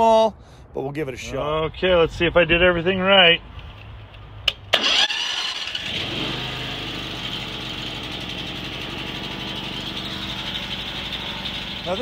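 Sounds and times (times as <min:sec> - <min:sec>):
gasoline engine starting and running: 0:04.4 - 0:12.0.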